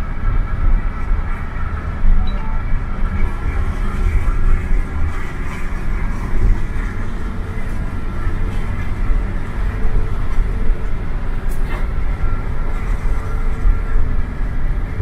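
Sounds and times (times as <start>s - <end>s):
coach engine and road rumble: 0.0s - 15.0s.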